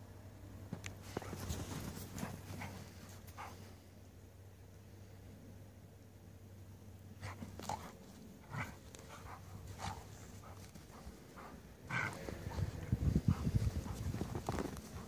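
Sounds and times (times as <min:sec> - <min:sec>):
dogs growling and scuffling: 0:01.0 - 0:03.7, 0:07.2 - 0:15.0
dogs yipping and grunting: 0:07.2 - 0:15.0.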